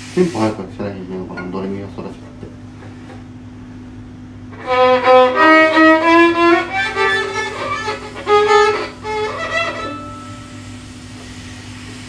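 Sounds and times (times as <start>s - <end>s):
steady low hum: 0.1s - 12.0s
solo violin: 4.5s - 10.0s.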